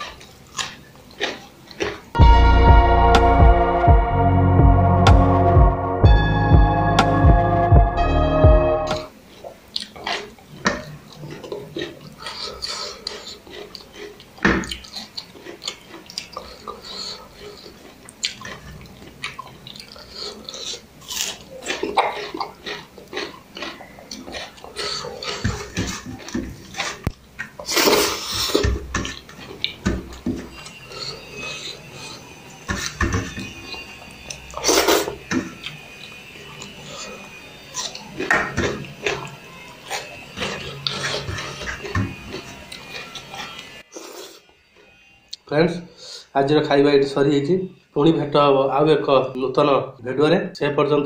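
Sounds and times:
wet chewing sounds: 0.0s - 2.2s, 9.3s - 44.4s
background music: 2.2s - 9.1s.

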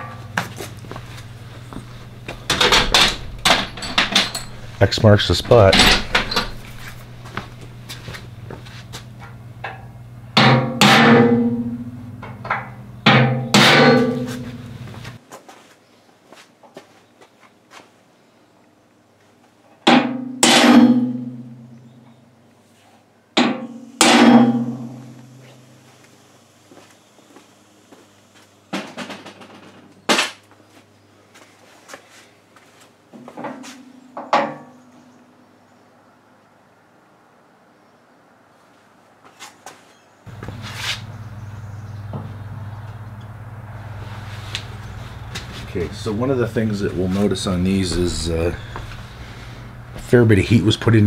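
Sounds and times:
steady low hum: 0.0s - 15.2s, 40.3s - 51.0s
metallic clanks of steel parts: 1.8s - 7.1s, 9.2s - 14.6s
sharp metal strike: 13.1s - 14.6s, 23.4s - 25.4s.

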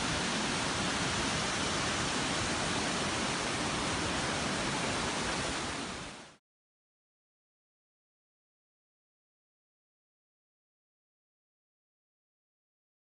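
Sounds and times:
waterfalls rushing: 0.0s - 6.4s.

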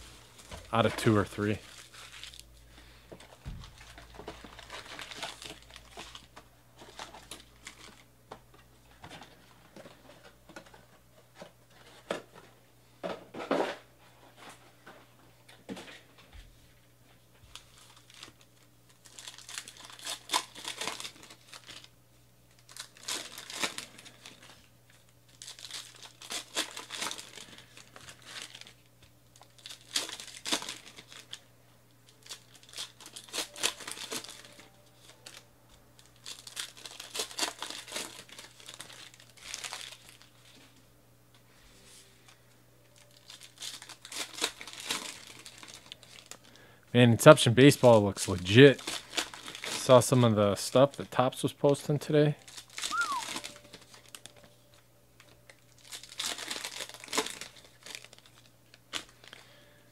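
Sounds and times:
plastic wrapping crinkling and tearing: 0.0s - 8.1s, 17.4s - 31.5s, 32.1s - 40.8s, 42.3s - 59.7s.

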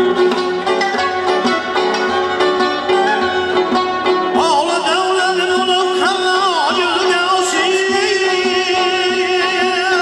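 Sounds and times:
bowed spike fiddle: 0.0s - 5.7s
plucked long-necked lute: 0.0s - 10.0s.

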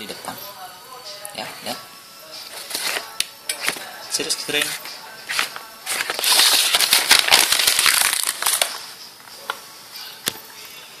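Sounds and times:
paper crumpling: 4.6s - 8.9s.

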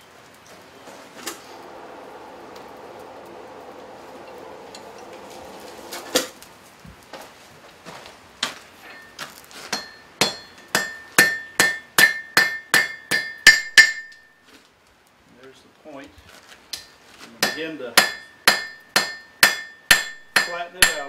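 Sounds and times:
hammer striking hot metal on anvil: 8.9s - 14.3s, 16.7s - 21.0s.

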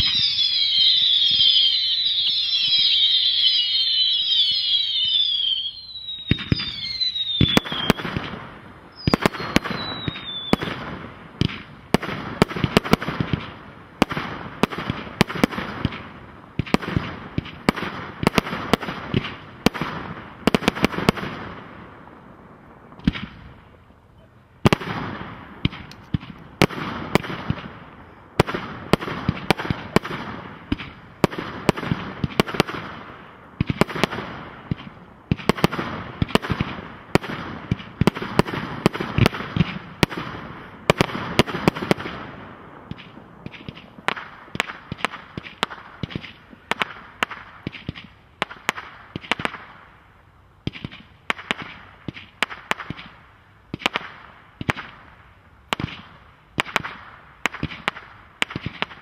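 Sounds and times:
firework whistles: 0.0s - 11.0s
firework bangs and crackling: 0.0s - 23.9s, 24.6s - 59.0s.

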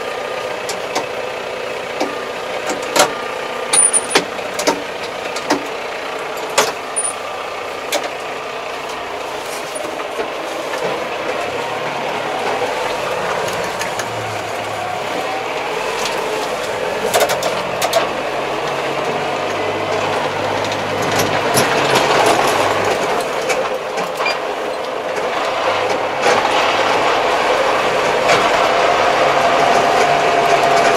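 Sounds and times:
tractor diesel engine running: 0.0s - 30.9s
clicks and rattles: 2.0s - 5.8s, 17.0s - 18.8s.

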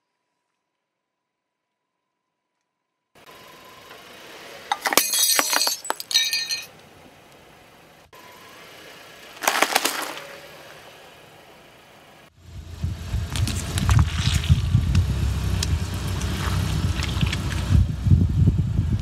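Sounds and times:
brittle shells cracking under tyre: 4.7s - 6.9s, 9.4s - 10.4s, 13.3s - 17.7s
egg shells crunching: 9.4s - 10.3s.

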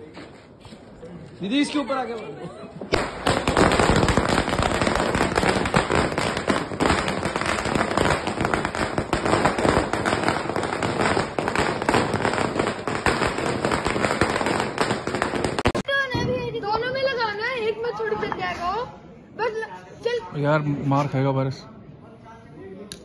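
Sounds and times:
string of firecrackers bangs: 2.9s - 16.4s.

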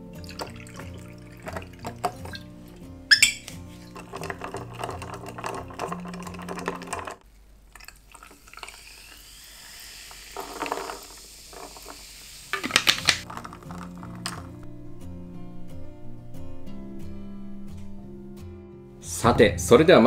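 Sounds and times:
background music: 0.0s - 7.2s, 12.6s - 20.0s
soda water fizzing pour: 0.0s - 14.6s
ice clinking against glass: 0.2s - 2.5s, 3.1s - 7.2s.

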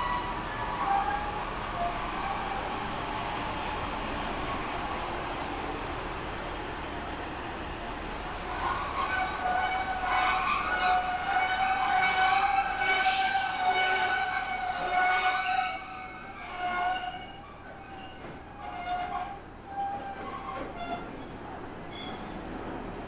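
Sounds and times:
train wheels squealing: 0.0s - 3.7s, 8.4s - 22.7s.

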